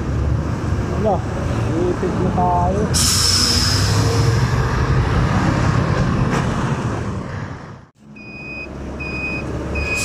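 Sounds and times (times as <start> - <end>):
traffic noise: 0.0 - 10.0.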